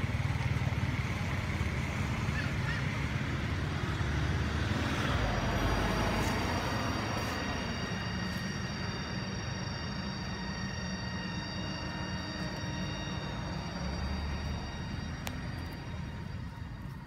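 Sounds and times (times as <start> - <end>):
outdoor rumble and hiss: 0.0 - 17.0
thin high tones: 5.2 - 17.0.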